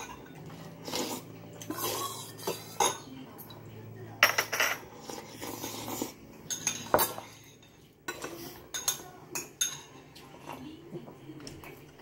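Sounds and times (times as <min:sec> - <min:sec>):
metal spoon clinking on bowl: 0:06.4 - 0:10.1.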